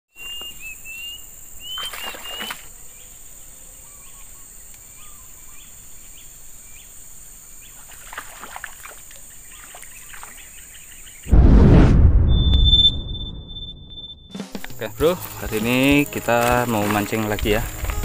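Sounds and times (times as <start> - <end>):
bird whistling and chirping: 0.1 - 2.7
high insect drone: 0.2 - 10.3, 14.7 - 18.0
faint rustles or splashes: 1.8 - 2.7, 7.8 - 10.6.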